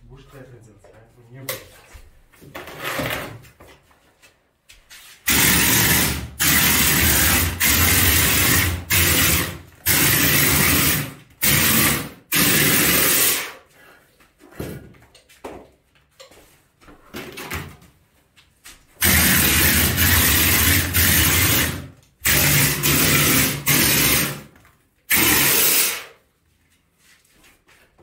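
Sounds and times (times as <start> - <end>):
compressed air spraying plaster: 5.2 - 13.6, 19.0 - 24.4, 25.1 - 26.2.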